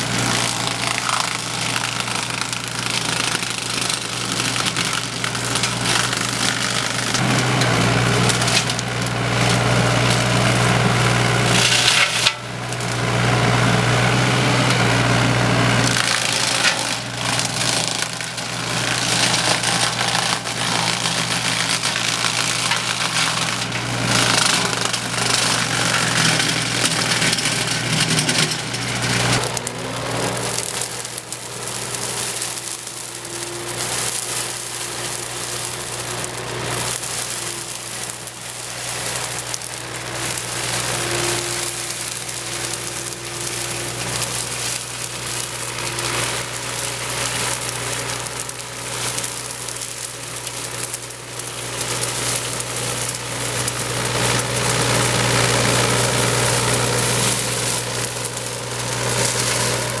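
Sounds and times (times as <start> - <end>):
diesel engine running: 0.0 - 60.0
flail mower hissing through grass: 24.0 - 60.0.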